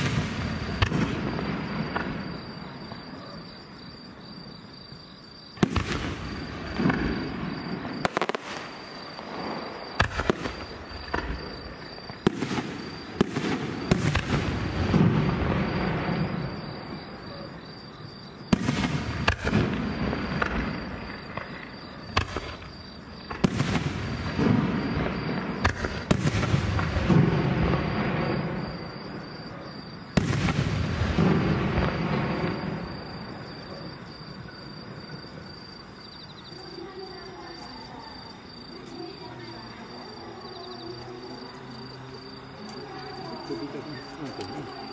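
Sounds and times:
firework shells booming: 0.0 - 3.8, 5.6 - 17.8, 18.4 - 35.9
faint insects chirping: 0.0 - 44.9.

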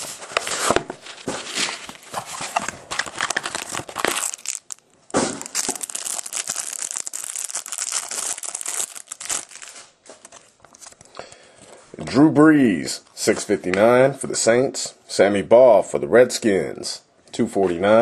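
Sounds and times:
wrapper crinkling and tearing: 1.5 - 11.0.

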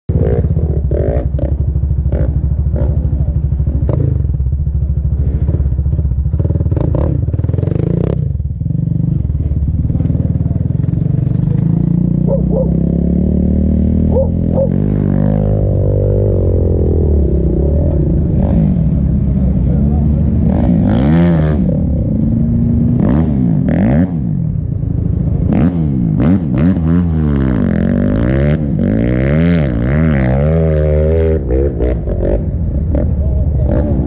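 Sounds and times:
atv engine running: 0.1 - 34.0.

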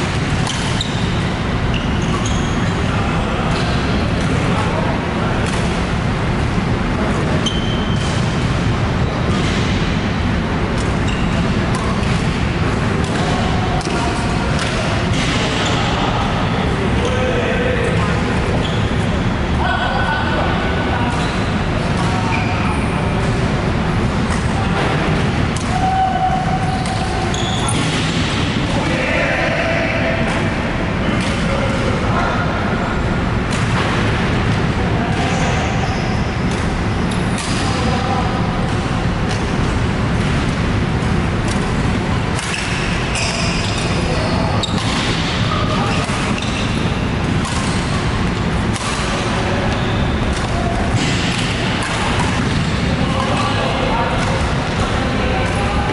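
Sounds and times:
sports hall din: 0.0 - 55.9
racket striking shuttlecock: 25.5 - 28.6, 38.6 - 44.0, 44.6 - 53.4.

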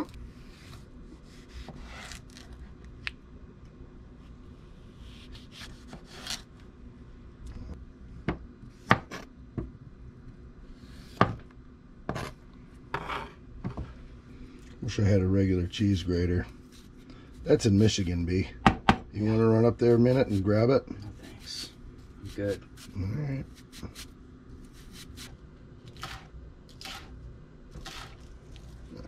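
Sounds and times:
blade rubbing vegetables: 27.8 - 28.3.

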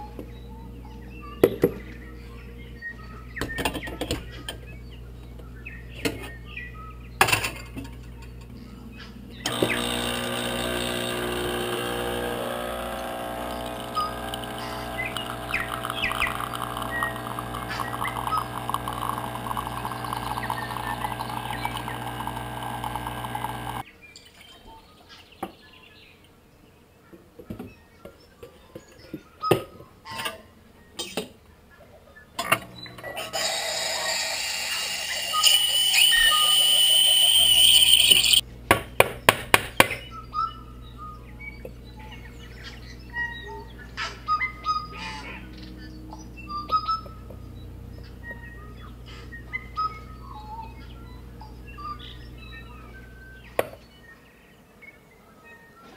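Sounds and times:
high whine: 9.4 - 23.8, 33.3 - 38.4
espresso machine pump humming: 9.5 - 23.8, 32.7 - 38.4
steam wand hissing: 33.2 - 38.4.

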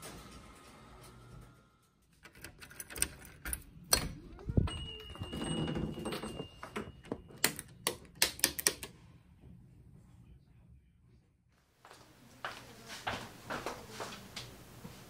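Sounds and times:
key rattling in lock: 2.2 - 3.6
door opening: 2.3 - 7.8.

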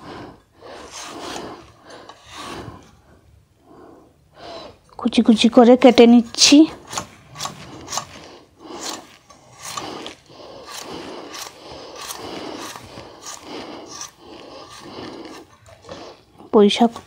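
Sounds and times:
knife cutting potato: 6.3 - 16.2.

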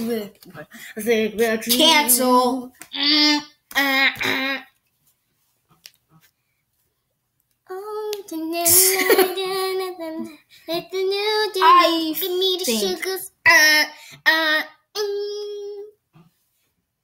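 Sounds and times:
child singing in high voice: 7.7 - 16.0.

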